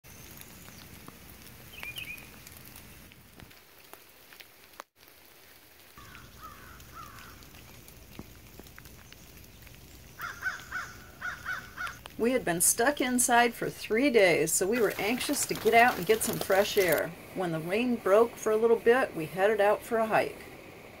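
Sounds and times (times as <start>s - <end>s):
water dripping from trees: 0.0s - 18.6s.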